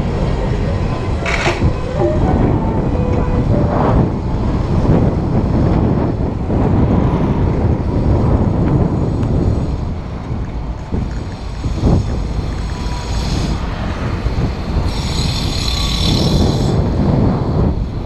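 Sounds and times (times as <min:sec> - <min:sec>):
street traffic: 0:00.0 - 0:18.0
wind buffeting microphone: 0:00.0 - 0:18.0.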